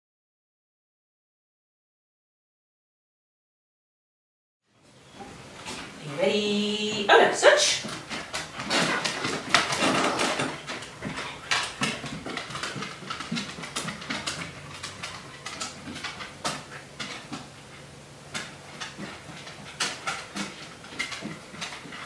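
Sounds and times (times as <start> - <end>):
dog claws clicking on wooden floor: 7.8 - 22.0.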